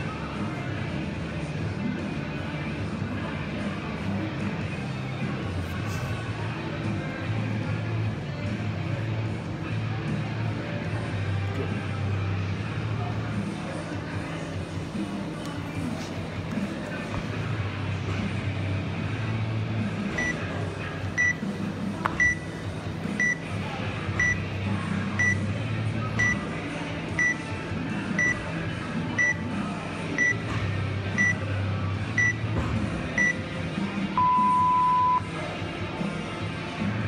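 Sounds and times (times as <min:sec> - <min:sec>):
long low timer beep: 0:34.2 - 0:35.2.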